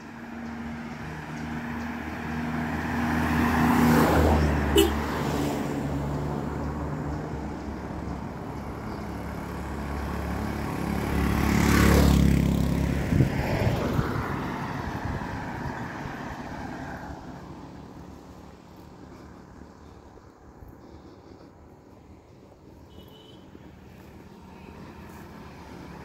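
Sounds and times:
small motorcycle passing: 0:08.6 - 0:18.2
car driving past: 0:09.5 - 0:17.9.

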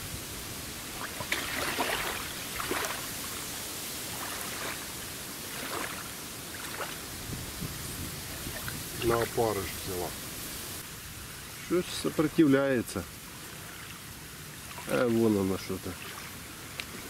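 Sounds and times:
waves lapping at riverbank: 0:00.0 - 0:17.0
light splashes in shallows: 0:00.8 - 0:07.6, 0:13.5 - 0:17.0.

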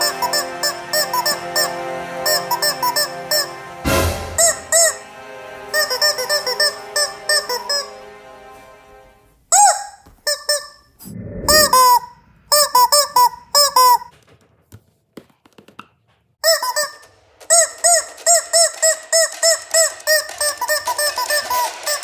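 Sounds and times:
rubber chicken toy squeaks: 0:09.5 - 0:10.8, 0:12.6 - 0:14.2, 0:16.4 - 0:22.0.

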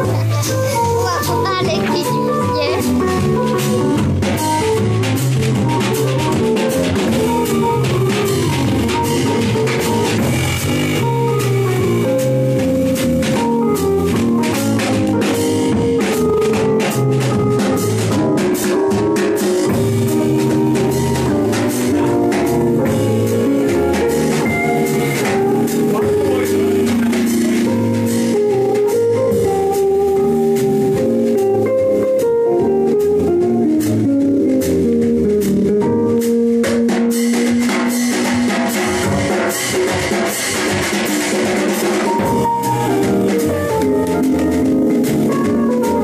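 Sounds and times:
drum kit beat: 0:00.0 - 0:46.0
electric guitar: 0:00.0 - 0:46.0
sustained pitched chords: 0:19.7 - 0:36.1.

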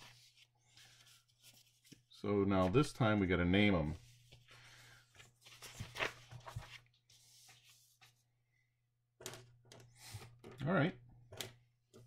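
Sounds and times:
paper rustling on desk: 0:04.0 - 0:08.2.

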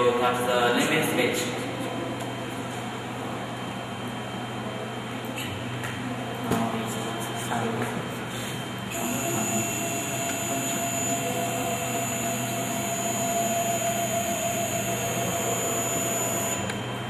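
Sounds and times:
steady low hum: 0:00.0 - 0:17.0
machine axis drive whine: 0:08.2 - 0:17.0.

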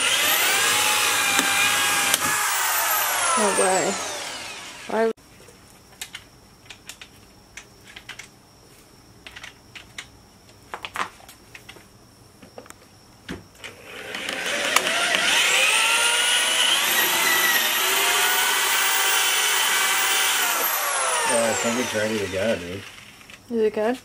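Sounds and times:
electric drill boring into metal: 0:00.0 - 0:05.1, 0:13.8 - 0:23.2.

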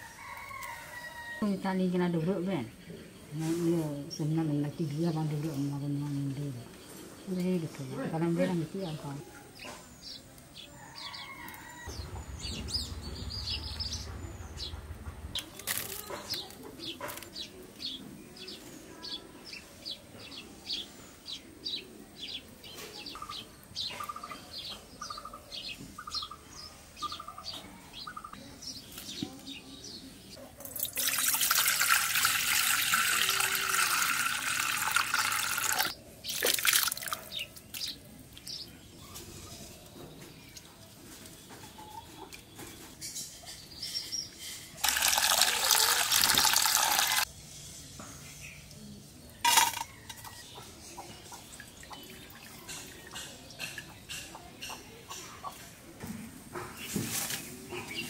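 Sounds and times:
birds chirping: 0:00.2 - 0:30.4
water pouring into steel bowl: 0:30.6 - 0:37.2, 0:44.8 - 0:47.3.

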